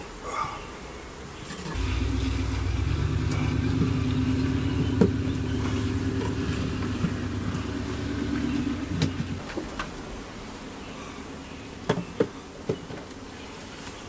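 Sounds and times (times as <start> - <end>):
low motor hum: 1.8 - 9.6.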